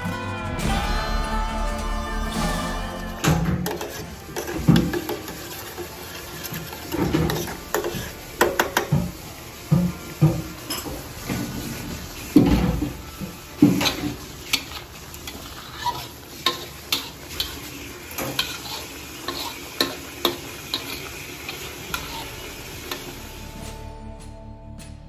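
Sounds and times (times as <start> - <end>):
ladle scraping wok: 0.5 - 23.7
steady sizzle: 0.5 - 24.4
sauce bubbling: 3.6 - 23.5.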